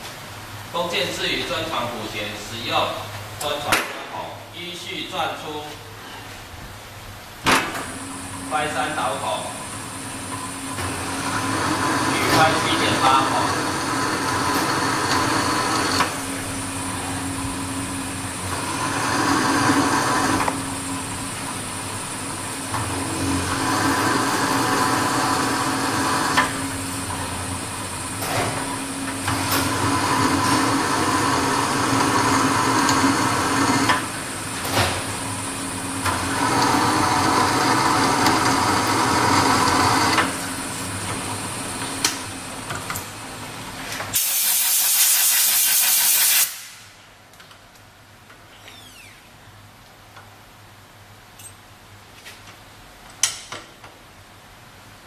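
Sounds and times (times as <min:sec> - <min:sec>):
drill press running: 0:07.8 - 0:43.7
drill cutting into metal: 0:11.0 - 0:16.1, 0:18.6 - 0:20.5, 0:29.6 - 0:34.0, 0:36.2 - 0:40.2.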